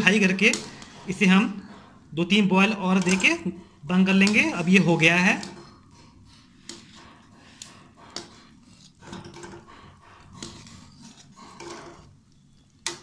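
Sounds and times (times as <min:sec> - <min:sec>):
spoon stirring thick liquid: 0:00.0 - 0:13.0.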